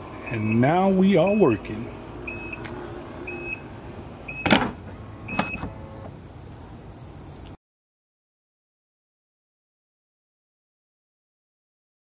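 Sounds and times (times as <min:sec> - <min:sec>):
short high warning beeps: 0:00.2 - 0:01.6, 0:02.3 - 0:02.6
liftgate closing thud: 0:04.3 - 0:06.2
latch click: 0:04.4 - 0:06.2.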